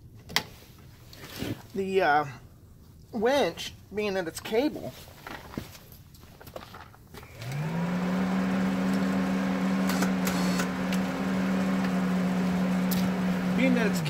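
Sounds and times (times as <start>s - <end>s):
winch motor humming: 7.2s - 14.0s.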